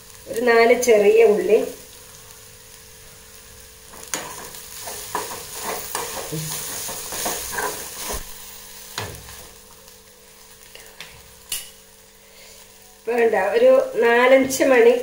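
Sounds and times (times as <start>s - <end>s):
food sizzling in oil: 0.0s - 15.0s
steel spoon scraping and knocking pan: 3.9s - 8.3s.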